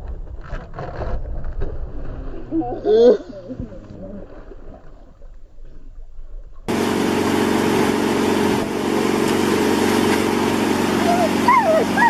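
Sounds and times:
wind: 0:00.0 - 0:12.0
outboard motor running: 0:06.7 - 0:12.0
rush of boat wake: 0:06.7 - 0:12.0.

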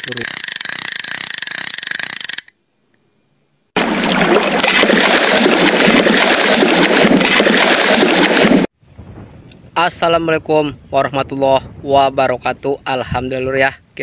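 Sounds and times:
rushing splashing water: 0:03.8 - 0:08.7.

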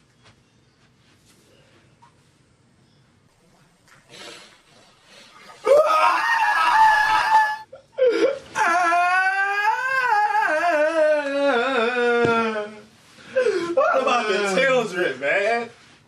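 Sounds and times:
breath: 0:04.1 - 0:05.5
man crying out and wailing: 0:05.7 - 0:12.8.

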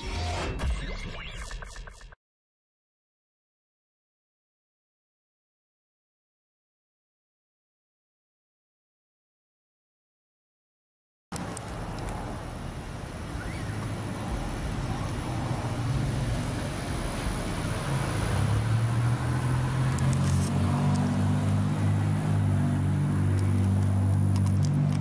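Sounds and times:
road traffic: 0:11.3 - 0:25.0
vehicle engine hum: 0:11.4 - 0:25.0.

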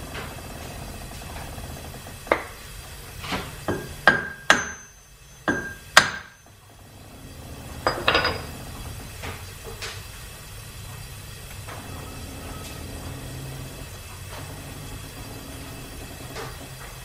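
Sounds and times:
hammer striking metal: 0:03.7 - 0:06.4.

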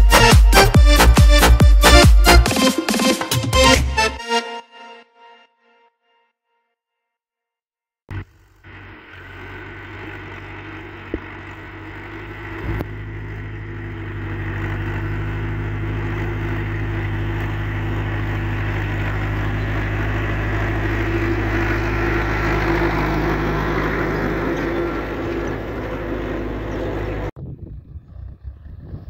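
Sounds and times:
tractor diesel engine running: 0:08.1 - 0:29.0.

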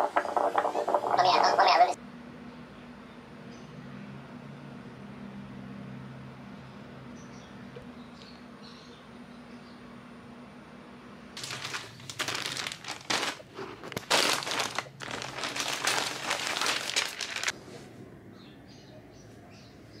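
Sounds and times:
crinkling rustling: 0:11.4 - 0:17.6.

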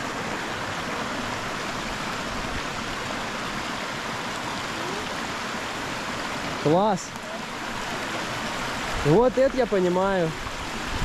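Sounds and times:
river flowing over stones: 0:00.0 - 0:11.0.

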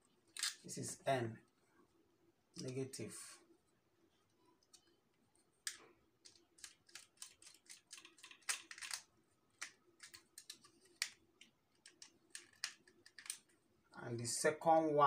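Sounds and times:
wire clicking and scratching: 0:04.6 - 0:13.6.

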